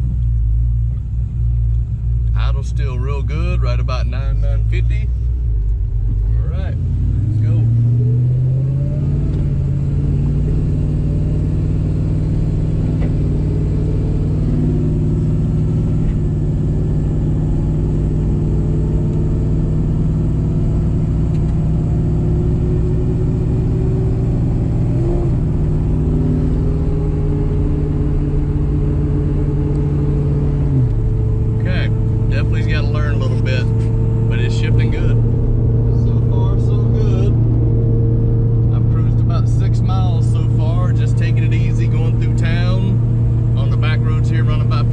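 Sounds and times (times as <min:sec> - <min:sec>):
car engine cruising: 0:00.0 - 0:44.9.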